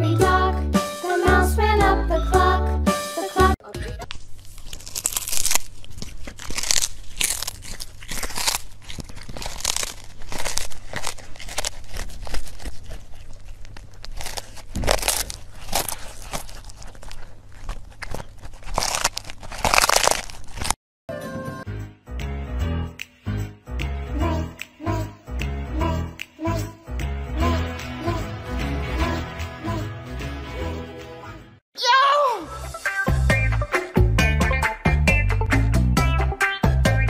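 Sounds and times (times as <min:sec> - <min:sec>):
cat crunching fish: 0:04.0 - 0:20.8.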